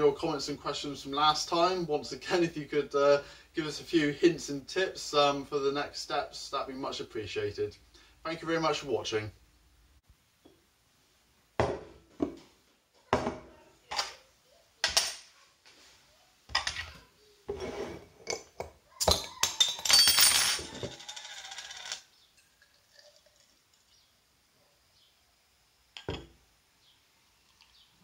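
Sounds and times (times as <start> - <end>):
glass and metal clinking on stone: 18.2 - 23.4, 26.0 - 26.3
beer fizzing into glass: 22.4 - 24.0.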